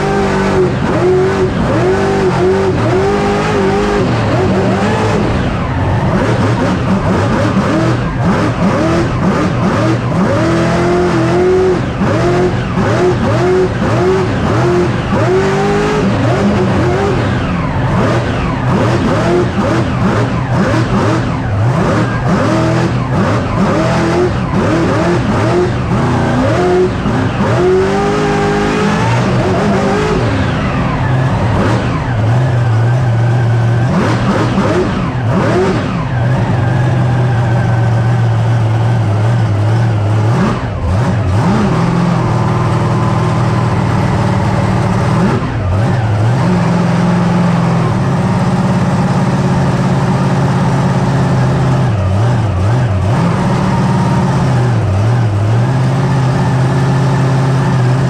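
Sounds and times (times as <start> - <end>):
truck engine revving: 0.0 - 58.0.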